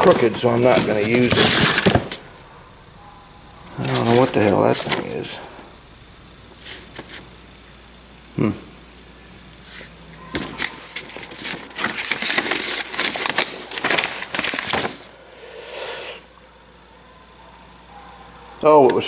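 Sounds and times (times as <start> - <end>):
paper crinkling and rustling: 0.0 - 2.2, 3.7 - 5.4, 9.7 - 15.1.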